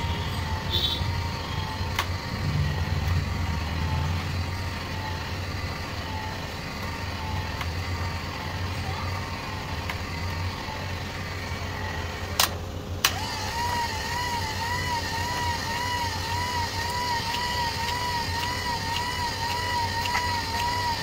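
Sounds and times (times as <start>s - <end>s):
motor humming and whining: 0.0s - 21.0s
sharp clicks: 1.9s - 2.2s, 12.3s - 14.0s, 16.8s - 21.0s.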